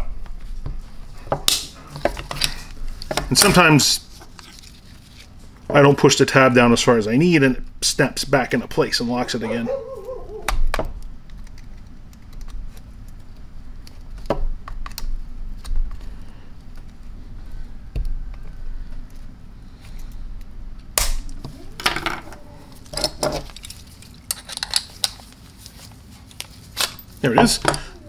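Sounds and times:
screwdriver clicking and scraping metal: 0:22.9 - 0:25.2.

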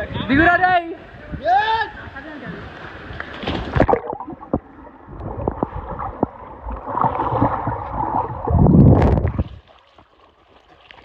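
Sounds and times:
deep muffled water rush: 0:00.0 - 0:11.0
underwater bubbling and gurgling: 0:03.0 - 0:11.0
underwater knocks: 0:03.5 - 0:09.5.

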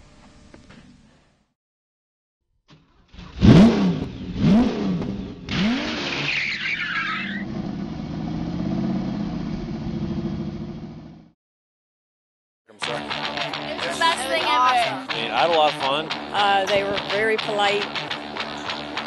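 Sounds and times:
car engine revving: 0:03.1 - 0:11.3.

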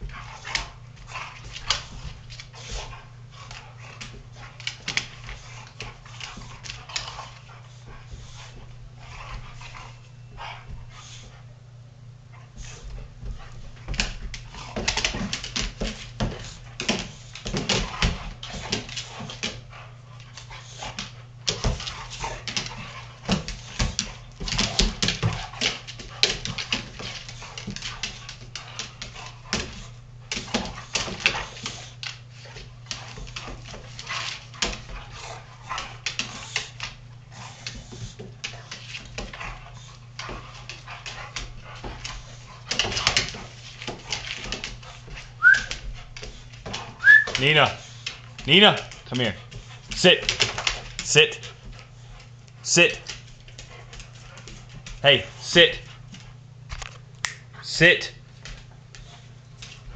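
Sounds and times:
dogs scuffling clicks and knocks: 0:00.0 - 0:11.5, 0:12.3 - 0:59.9.

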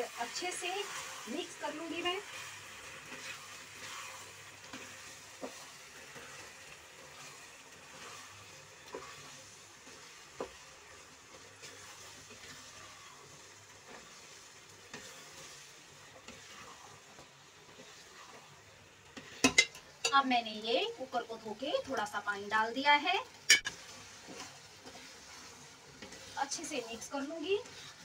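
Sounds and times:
wooden spatula stirring and scraping: 0:00.0 - 0:22.8, 0:23.6 - 0:28.0
food sizzling in a pan: 0:00.0 - 0:28.0
spatula tapping pan: 0:08.8 - 0:11.8, 0:19.2 - 0:20.2.

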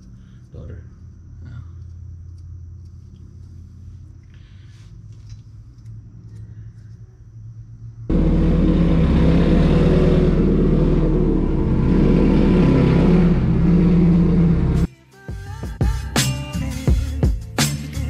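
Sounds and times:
car engine running at low revs: 0:08.0 - 0:14.9
loud exhaust note: 0:08.1 - 0:14.9.

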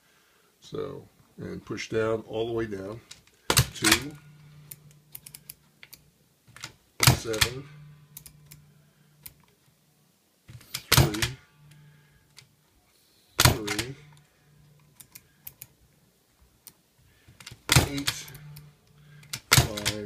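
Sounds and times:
light machine clicks: 0:17.5 - 0:20.0.

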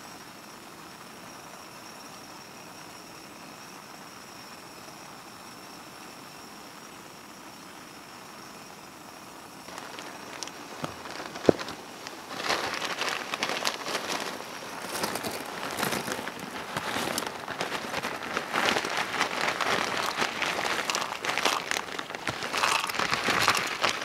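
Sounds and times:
water boiling in metal pot: 0:09.7 - 0:24.0.

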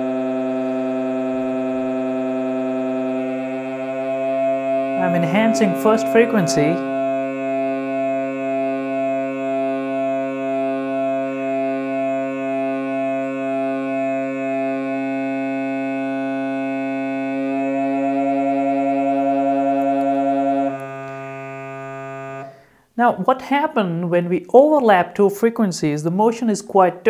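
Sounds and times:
beating electronic tones: 0:00.0 - 0:09.9, 0:16.4 - 0:21.2.

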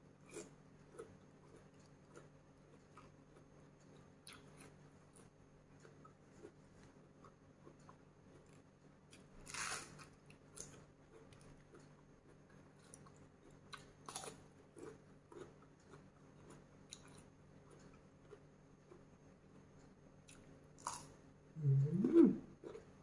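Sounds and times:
chewing food: 0:00.2 - 0:23.0
wet mouth clicks: 0:21.6 - 0:22.4.

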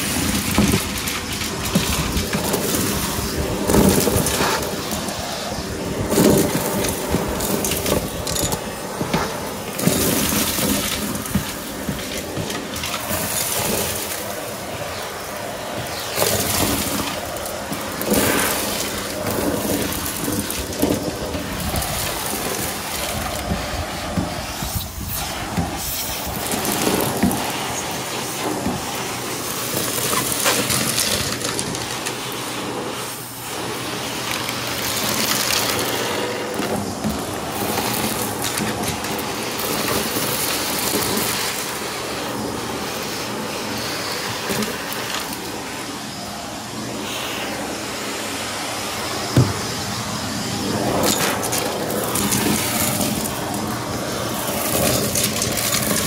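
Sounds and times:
stick vacuum running on carpet: 0:00.0 - 0:56.0
debris clicking and rattling in wand: 0:06.2 - 0:08.7.

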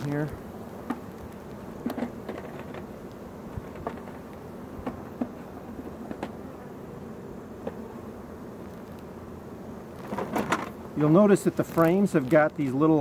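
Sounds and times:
bees buzzing: 0:00.0 - 0:13.0.

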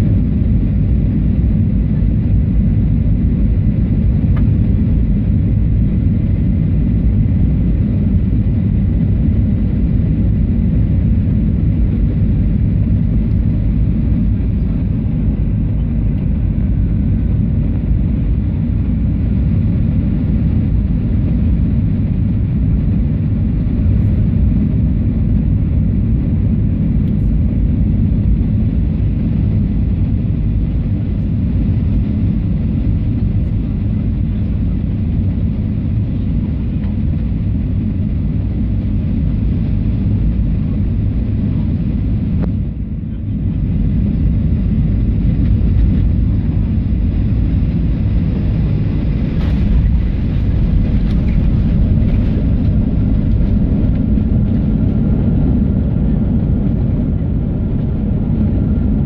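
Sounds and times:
jet engines in aircraft cabin: 0:00.0 - 0:59.0
rushing air: 0:44.3 - 0:57.1.

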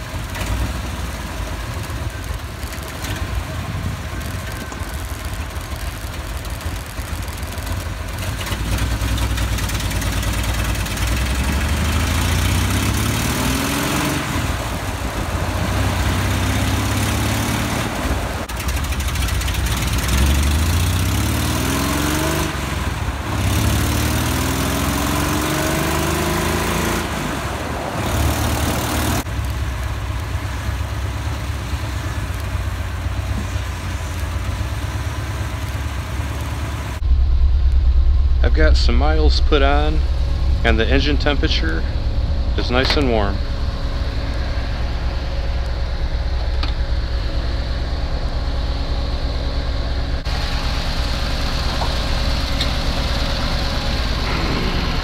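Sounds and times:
car engine shifting gears: 0:00.0 - 0:29.3, 0:40.6 - 0:47.4, 0:51.5 - 0:55.0
road and wind noise: 0:00.0 - 0:55.0.

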